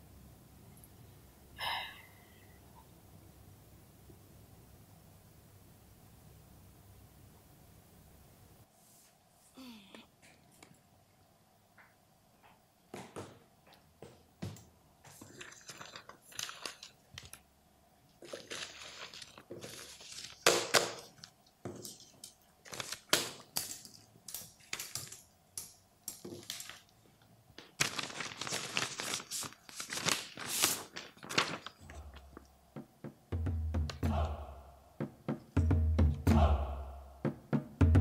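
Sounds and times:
paper rustling and shuffling: 15.1s - 17.4s, 18.2s - 25.3s, 26.2s - 32.5s.

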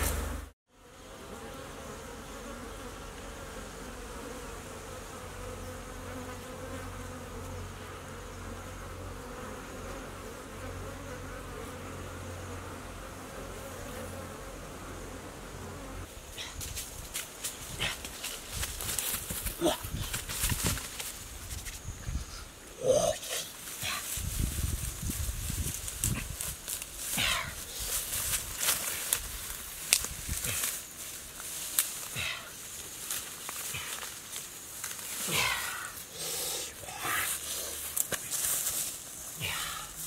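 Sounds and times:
bees humming: 0.0s - 16.1s
footsteps through undergrowth: 16.5s - 21.8s, 23.5s - 36.2s, 37.1s - 39.8s.

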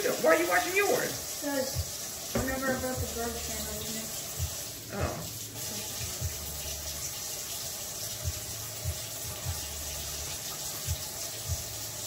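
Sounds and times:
tap running: 1.8s - 3.2s.

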